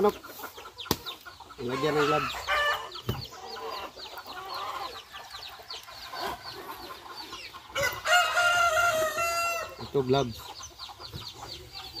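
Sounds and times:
chickens clucking and peeping: 0:00.0 - 0:12.0
rooster crowing: 0:07.8 - 0:09.8.

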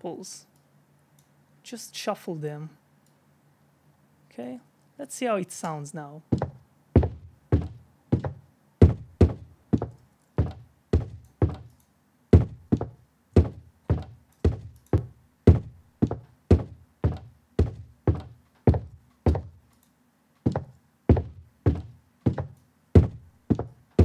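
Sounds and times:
footsteps on hard floor: 0:06.3 - 0:11.7, 0:12.4 - 0:19.6, 0:20.4 - 0:24.0.

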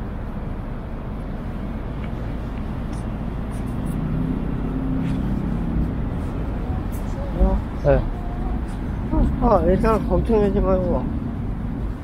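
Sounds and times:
city traffic rumble: 0:00.0 - 0:12.0
engine hum: 0:00.0 - 0:12.0.

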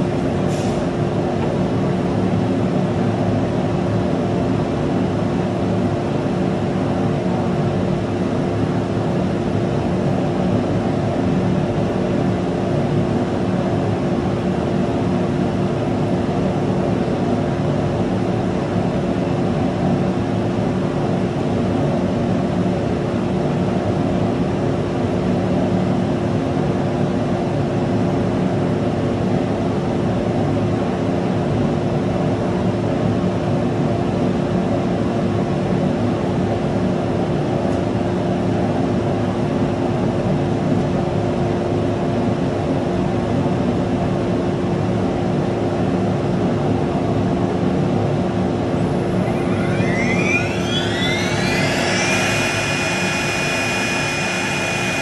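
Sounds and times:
steady machine hum: 0:47.4 - 0:55.0
router machine noise: 0:48.8 - 0:55.0.

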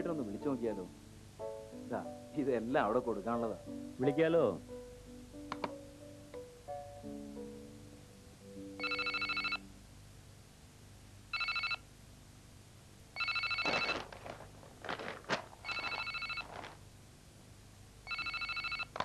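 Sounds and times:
telephone ringing: 0:08.8 - 0:09.7, 0:11.3 - 0:11.8, 0:13.2 - 0:14.1, 0:15.6 - 0:16.5, 0:18.0 - 0:19.0
rustles and knocks: 0:13.6 - 0:16.8.

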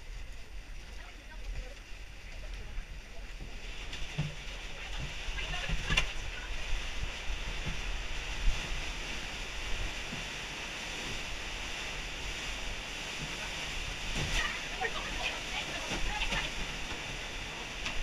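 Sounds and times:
wind rumble on microphone: 0:00.0 - 0:18.0
river water rushing: 0:01.8 - 0:18.0
microphone handling noise: 0:03.4 - 0:11.4.

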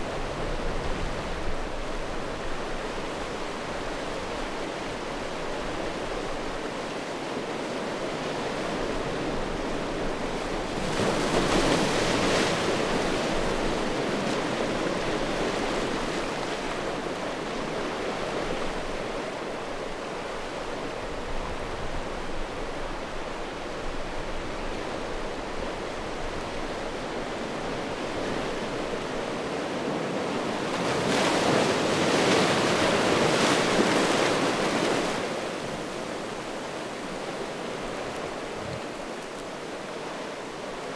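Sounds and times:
waves washing on stones: 0:27.4 - 0:40.9.

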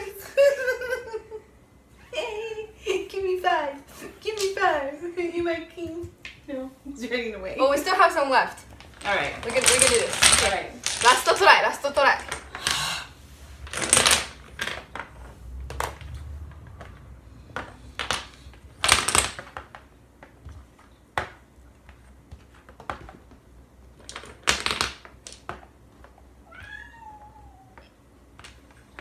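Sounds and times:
domino tiles clicking: 0:08.8 - 0:12.8, 0:13.6 - 0:15.1, 0:17.6 - 0:19.8, 0:24.0 - 0:25.6
clatter of domino heap: 0:08.9 - 0:12.8, 0:13.6 - 0:15.0, 0:17.6 - 0:19.6, 0:24.1 - 0:25.4.

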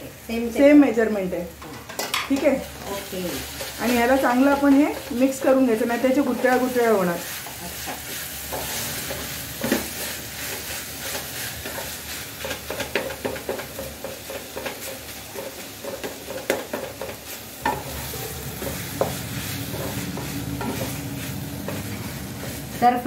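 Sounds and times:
frying sizzle: 0:00.0 - 0:23.0
spatula scraping metal pan: 0:17.7 - 0:23.0.

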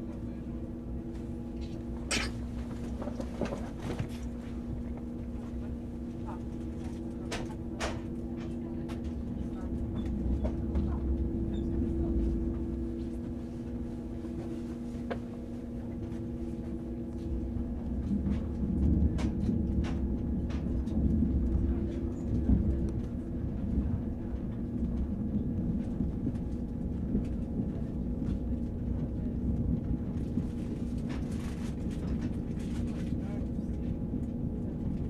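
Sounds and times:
train low rumble: 0:00.0 - 0:35.0.

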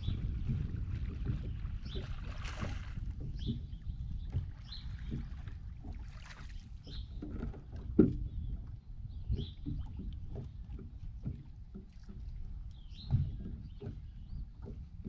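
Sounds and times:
steady low rumble: 0:00.0 - 0:06.0
water lapping against boat hull: 0:00.0 - 0:15.0.

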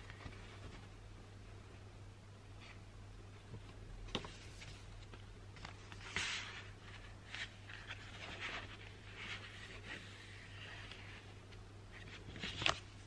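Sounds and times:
low steady hum: 0:00.0 - 0:13.0
paper rustling and sliding: 0:04.1 - 0:13.0.

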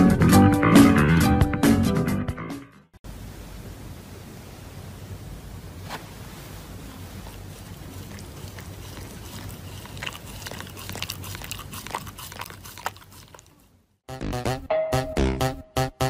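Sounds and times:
low steady hiss: 0:03.0 - 0:08.8
dog chewing paper mask: 0:07.1 - 0:13.7.

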